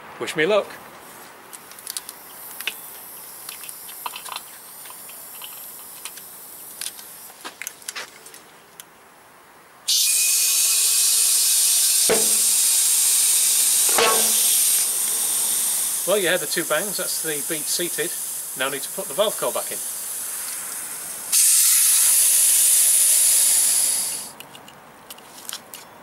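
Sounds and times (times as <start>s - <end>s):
compressed air hissing: 9.9s - 24.4s
tyre bead bangs: 12.1s - 12.8s, 13.9s - 14.8s
air chuck clicks: 12.1s - 14.9s.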